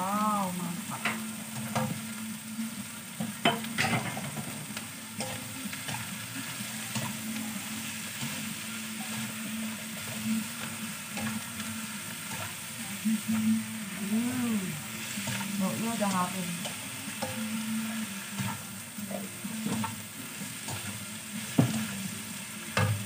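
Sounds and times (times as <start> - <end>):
food sizzling in a frying pan: 0.0 - 23.0
spatula scraping a pan: 5.2 - 13.0.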